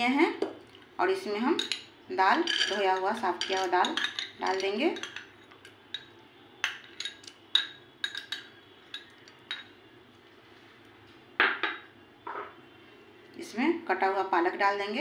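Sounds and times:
steel utensils and pots clinking: 1.4 - 9.8
utensils clattering: 1.6 - 9.7.

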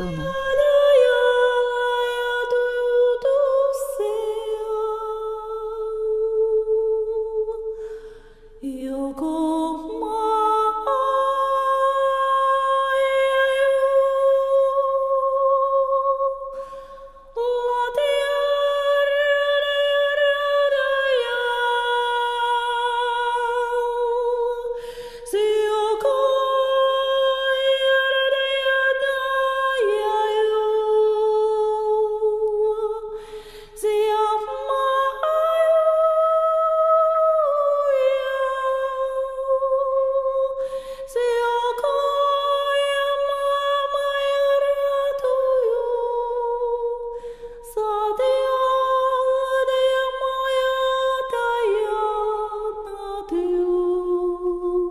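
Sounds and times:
woman singing wordless tones: 0.0 - 7.7, 8.6 - 16.5, 17.4 - 54.9.

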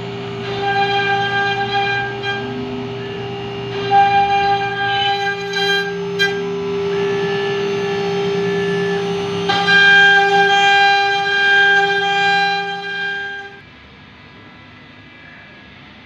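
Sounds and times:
router spindle whine cutting wood: 0.0 - 13.6.

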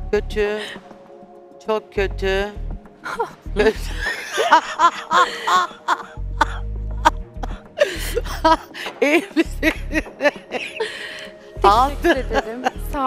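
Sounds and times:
background music with bass line: 0.0 - 8.8, 9.4 - 13.0
woman laughing: 3.1 - 13.0.

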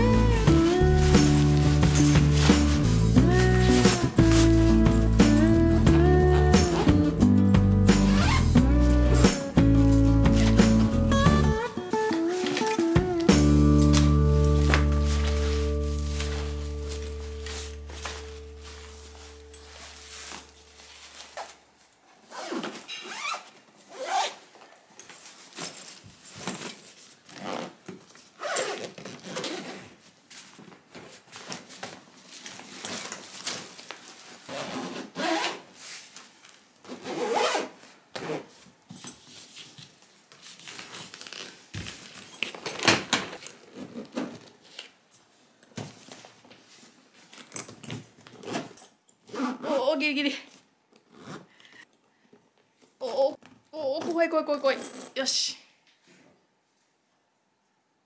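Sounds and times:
luggage zipper pulled: 0.0 - 6.9, 8.0 - 11.6, 22.3 - 24.4, 27.3 - 27.8, 28.4 - 29.9, 34.4 - 35.7, 36.9 - 38.5, 48.3 - 49.8, 51.1 - 51.5
bag handling noise: 0.0 - 49.8.

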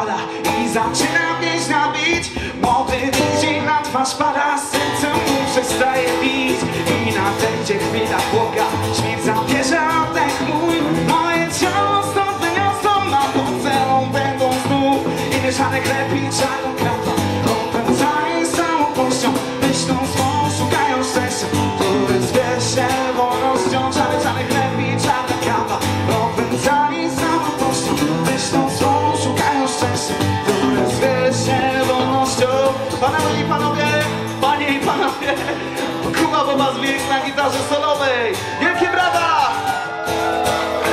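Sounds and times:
acoustic guitar strumming: 0.0 - 40.9
amplified electric guitar: 0.0 - 40.9.

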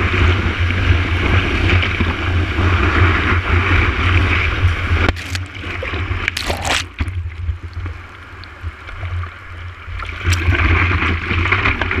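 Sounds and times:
water rushing and splashing: 3.9 - 12.0
loud splash: 5.1 - 7.3.

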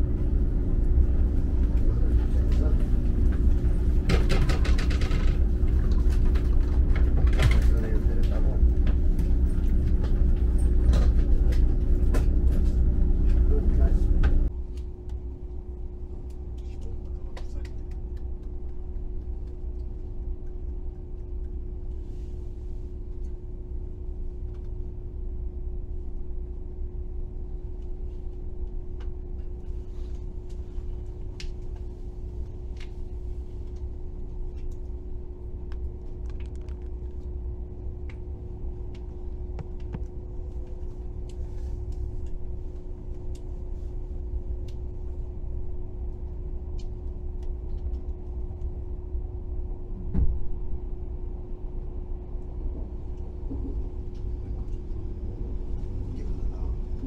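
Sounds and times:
train rumbling on board: 0.0 - 57.0.

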